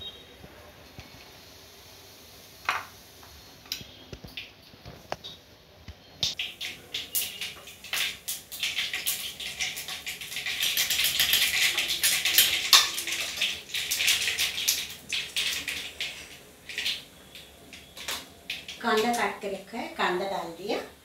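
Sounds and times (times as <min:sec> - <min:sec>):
seeds spluttering in hot oil: 0:06.0 - 0:19.5.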